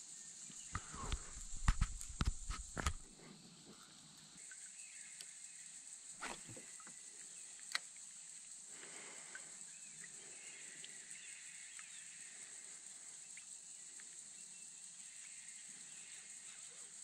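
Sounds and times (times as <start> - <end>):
high drone of insects: 0.0 - 17.0
sharp click: 0.8 - 3.0.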